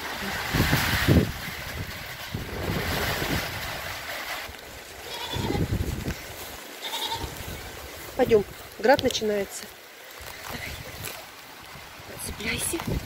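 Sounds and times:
goat bleating: 0:05.0 - 0:05.7, 0:06.8 - 0:07.5.

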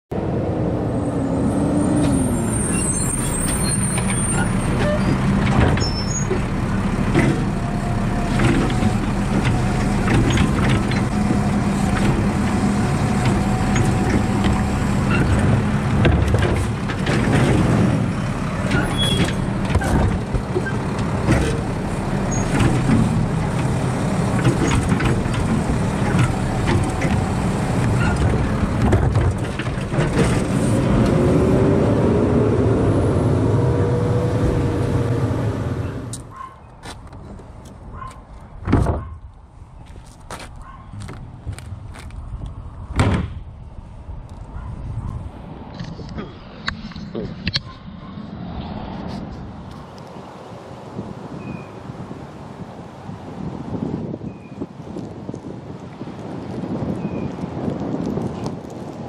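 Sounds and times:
garbage truck diesel drone: 0:00.1 - 0:36.3
trash carts knocking and clattering: 0:03.5 - 0:31.1, 0:38.0 - 0:39.1, 0:43.0 - 0:43.5.

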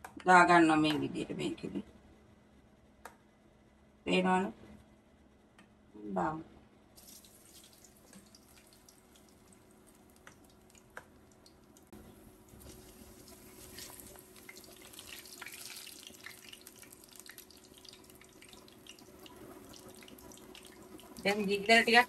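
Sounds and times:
batter sizzling in hot oil: 0:07.0 - 0:10.9, 0:12.4 - 0:22.0.

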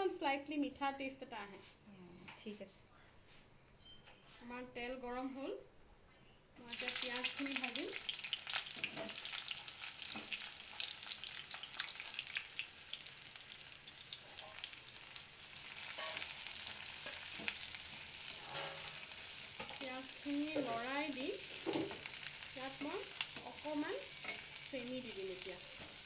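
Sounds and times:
onions sizzling in oil: 0:06.6 - 0:26.0
spatula scraping pan: 0:15.8 - 0:22.3.

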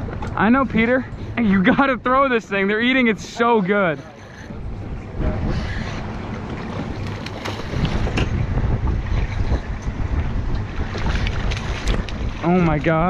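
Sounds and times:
water against boat hull: 0:00.0 - 0:13.0
wind buffeting microphone: 0:00.0 - 0:13.0
rough low rumble: 0:04.3 - 0:13.0.

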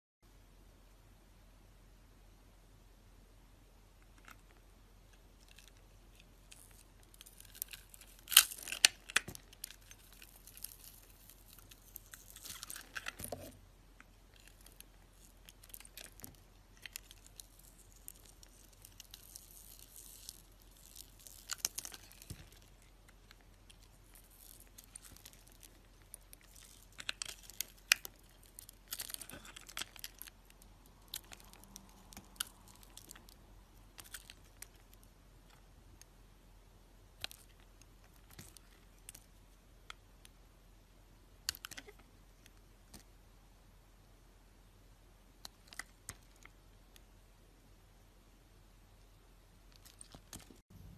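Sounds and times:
knife cutting and scraping soap: 0:06.5 - 0:13.6.

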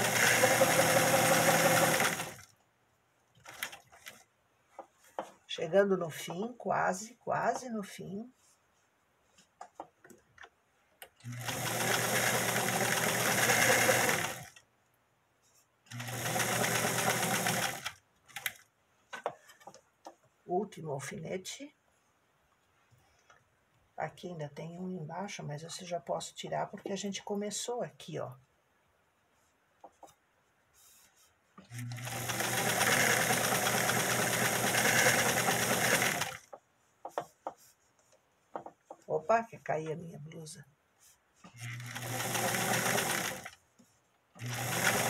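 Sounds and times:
electric sewing machine stitching: 0:00.0 - 0:02.5, 0:11.2 - 0:14.6, 0:15.9 - 0:18.6, 0:31.6 - 0:36.5, 0:41.5 - 0:43.6, 0:44.4 - 0:45.0
faint clicks of fabric handling: 0:02.5 - 0:05.6, 0:08.3 - 0:11.2.

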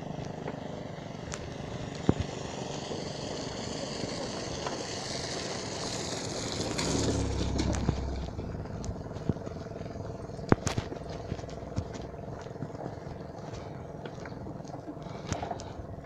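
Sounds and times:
car passing: 0:00.0 - 0:12.4
bicycle rolling on dirt road: 0:00.0 - 0:16.0.

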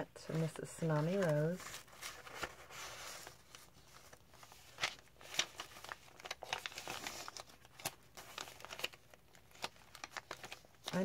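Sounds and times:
paper rustling and crinkling: 0:00.0 - 0:11.0.

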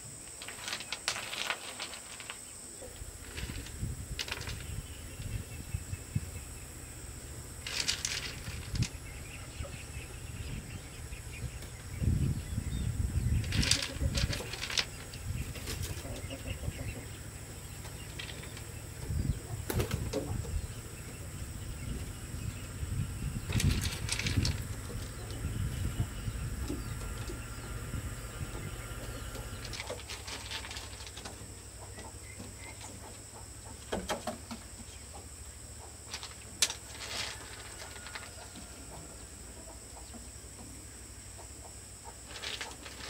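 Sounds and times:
pebbles clicking and clattering: 0:00.3 - 0:02.4, 0:03.2 - 0:04.7, 0:07.6 - 0:09.0, 0:13.4 - 0:15.2, 0:23.5 - 0:24.7, 0:29.6 - 0:31.4
soft rustling and scraping: 0:00.3 - 0:05.4, 0:28.6 - 0:33.0, 0:36.1 - 0:39.2, 0:42.2 - 0:43.0.

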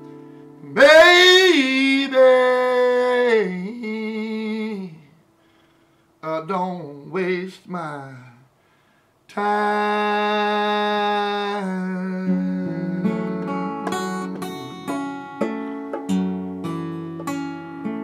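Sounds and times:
fingerstyle acoustic guitar: 0:00.0 - 0:04.8, 0:09.8 - 0:18.0.

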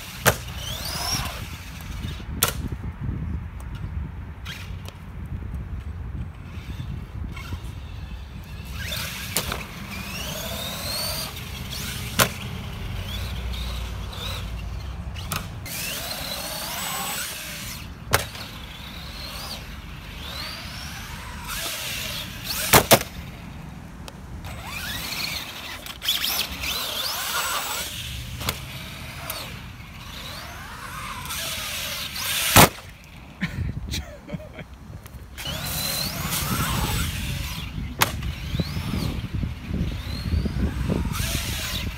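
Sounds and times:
electric motor whining: 0:00.0 - 0:02.6, 0:06.4 - 0:23.4, 0:24.4 - 0:33.2, 0:35.4 - 0:41.9
toy truck landing bangs: 0:00.2 - 0:01.4, 0:08.9 - 0:12.4, 0:15.2 - 0:18.6, 0:20.4 - 0:23.2, 0:30.5 - 0:32.9.

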